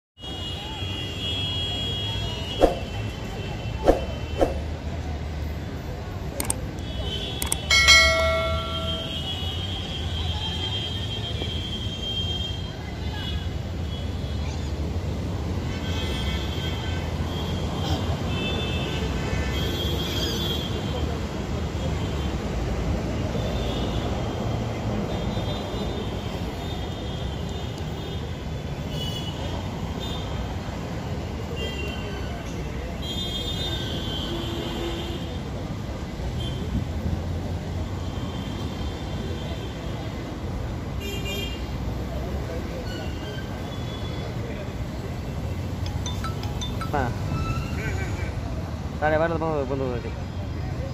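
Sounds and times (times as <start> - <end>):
bright bell ding: 7.7 - 9.2, 45.8 - 47.6.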